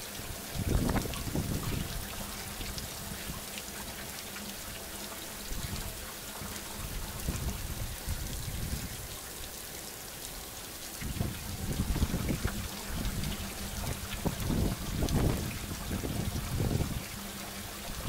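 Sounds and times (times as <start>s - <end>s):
steady rain falling: 0.0s - 18.0s.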